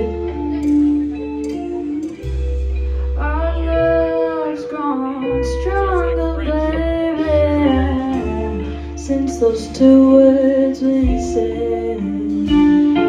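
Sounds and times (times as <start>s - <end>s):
live band playing: 0.0s - 13.0s
low bass notes: 0.0s - 13.0s
person singing: 0.0s - 13.0s.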